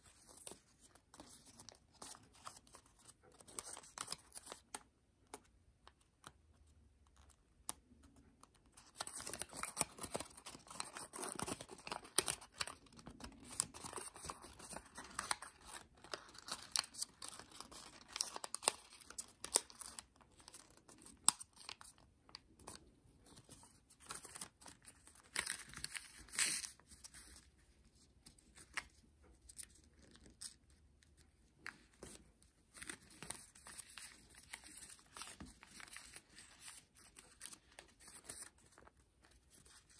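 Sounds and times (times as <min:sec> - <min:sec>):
paper rustling and crinkling: 0:08.7 - 0:30.8, 0:31.6 - 0:39.9.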